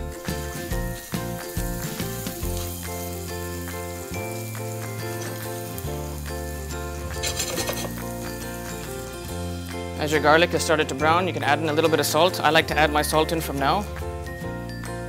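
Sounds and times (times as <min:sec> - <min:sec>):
food sizzling in frying pan: 0:00.0 - 0:10.0
background music: 0:00.0 - 0:15.0.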